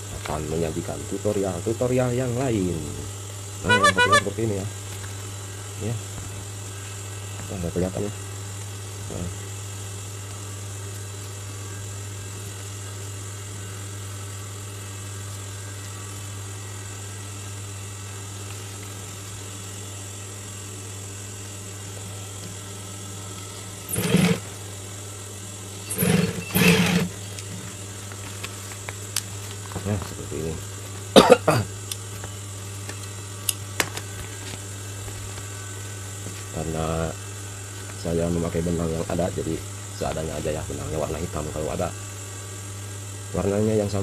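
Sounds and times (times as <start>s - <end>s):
sewing machine motor humming: 23.8s - 24.6s, 25.9s - 27.6s
sewing machine stitching bursts: 23.9s - 24.5s, 25.9s - 27.2s.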